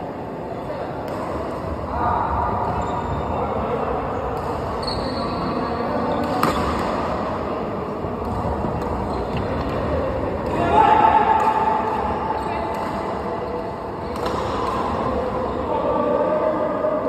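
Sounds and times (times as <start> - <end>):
rumbling hall background noise: 0.0 - 17.0
racket hitting shuttlecock: 6.2 - 7.3, 8.1 - 13.3, 14.0 - 15.3.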